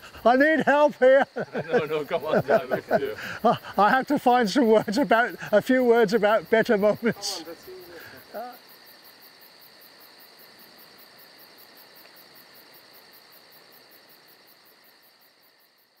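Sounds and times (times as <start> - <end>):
forest insects chirring: 0.0 - 16.0
person laughing: 0.7 - 3.9.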